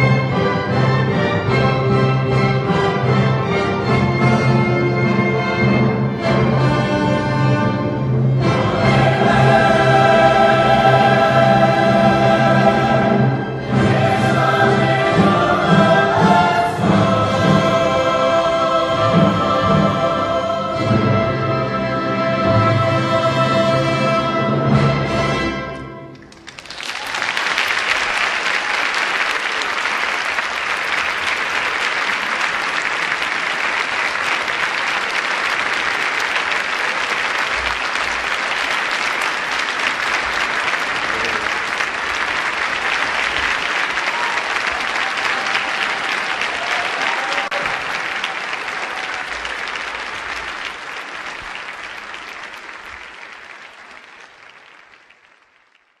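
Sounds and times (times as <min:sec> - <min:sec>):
audience applauding: 0:26.1 - 0:56.0.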